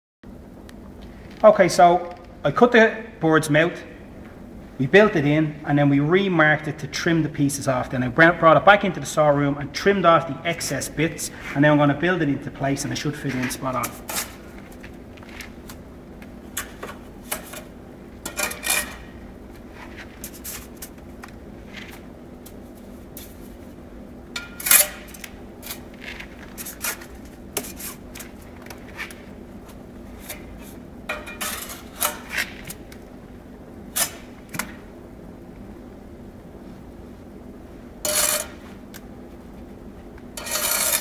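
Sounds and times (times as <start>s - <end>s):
steady low hum: 0.2s - 41.0s
trowel and bricks clinking scraping: 17.3s - 19.1s, 30.2s - 32.7s, 38.0s - 38.6s, 40.4s - 41.0s.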